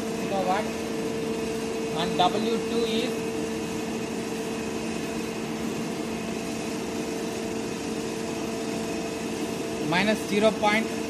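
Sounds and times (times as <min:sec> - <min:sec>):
electric motor humming: 0:00.0 - 0:11.0.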